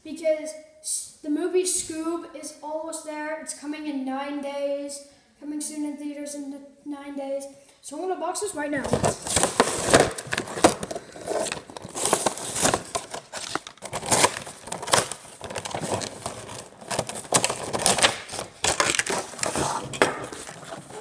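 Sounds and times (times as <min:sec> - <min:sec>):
plastic blister crinkling: 0:08.8 - 0:21.0
cardboard ripping: 0:08.9 - 0:21.0.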